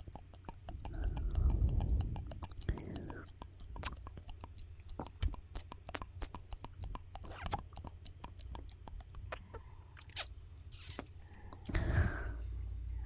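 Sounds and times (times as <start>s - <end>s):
wet lip and tongue clicks: 0.0s - 11.9s
hiss of air: 10.2s - 11.1s.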